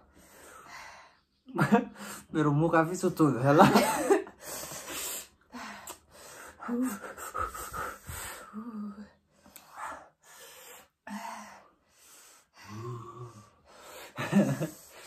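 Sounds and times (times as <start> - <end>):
heavy wheezing breaths and gasps: 4.3 - 15.0.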